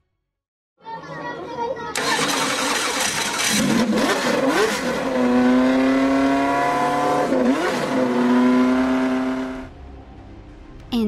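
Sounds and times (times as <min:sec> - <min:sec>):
racing car engine revving: 0:02.1 - 0:09.7.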